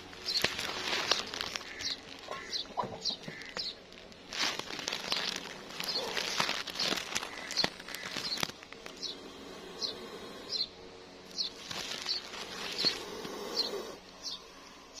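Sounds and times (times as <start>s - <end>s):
faint rustles: 0.0s - 14.7s
small animal chirping: 5.0s - 9.2s, 9.8s - 14.4s.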